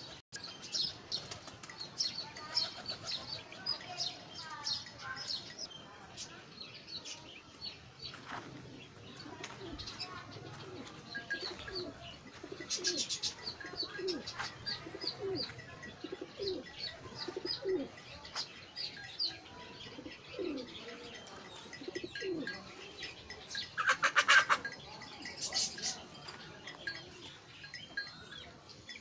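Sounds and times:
small birds chirping: 0.0 - 29.0
pigeons cooing: 8.5 - 28.3.

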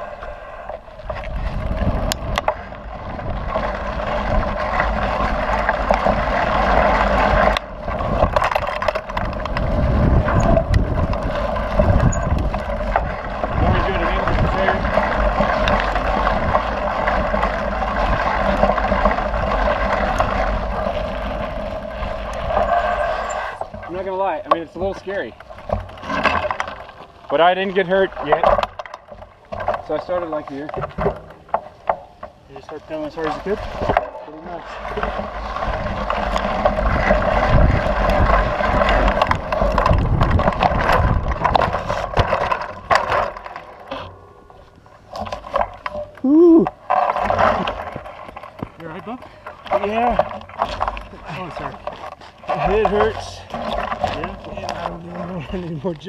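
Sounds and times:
wind on microphone: 0.0 - 5.6, 6.2 - 23.6, 34.9 - 42.9
bike tyre rolling on dirt: 0.0 - 56.0
bike rattling clicks: 1.0 - 56.0
chain and frame rattling: 10.0 - 16.2.

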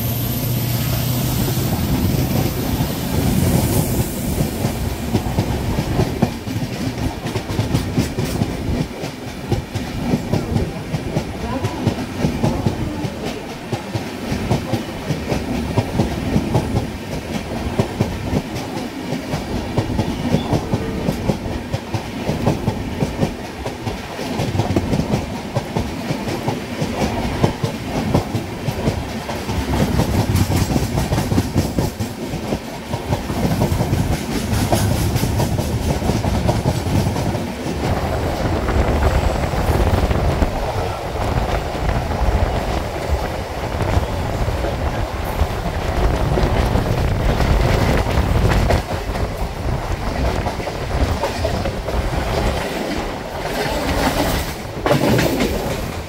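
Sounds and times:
express train passing: 0.0 - 56.0
train running rumble: 0.0 - 56.0
wheels clacking over rail joints: 39.9 - 56.0.

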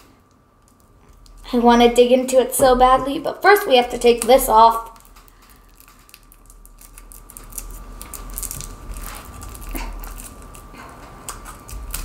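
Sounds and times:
plastic shrink wrap crinkling: 2.6 - 12.0.

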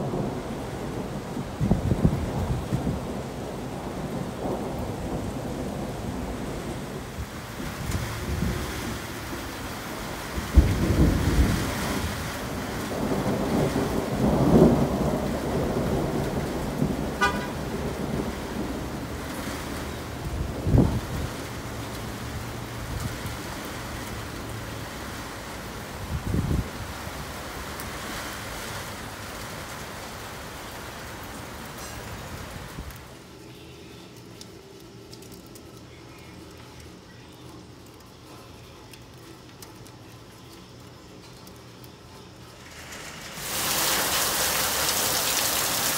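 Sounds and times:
thunder rumbling: 0.0 - 27.7
heavy rain: 0.0 - 45.9.

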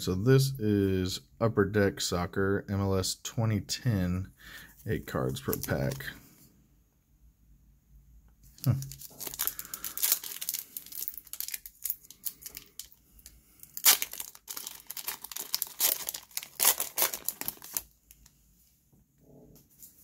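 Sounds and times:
cards rustling: 4.9 - 6.2, 8.6 - 13.0, 13.7 - 18.3
foil wrapper crinkling and tearing: 5.4 - 6.1, 8.6 - 18.3.

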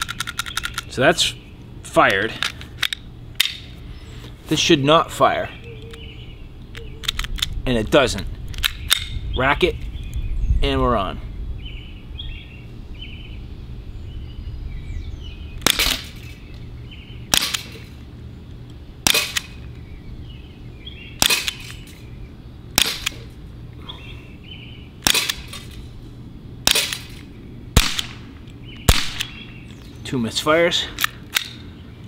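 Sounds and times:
air pistol pops: 15.6 - 16.1, 22.8 - 23.2, 25.0 - 25.6, 28.8 - 29.4.

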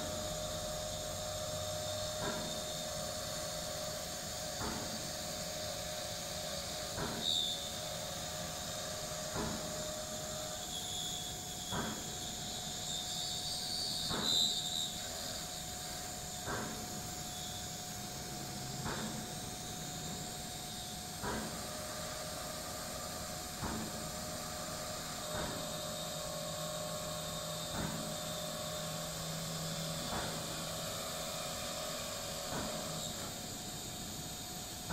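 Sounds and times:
brief high squeals: 10.3 - 15.0.

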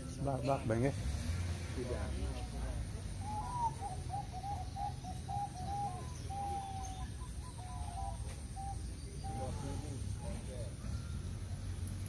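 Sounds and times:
doves cooing: 1.9 - 11.7.

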